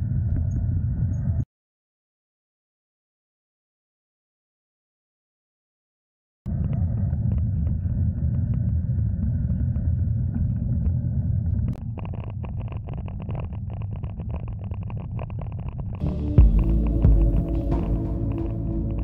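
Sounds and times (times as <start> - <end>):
wind buffeting microphone: 6.5 - 14.6
faint ticks and rattles: 11.7 - 17.0.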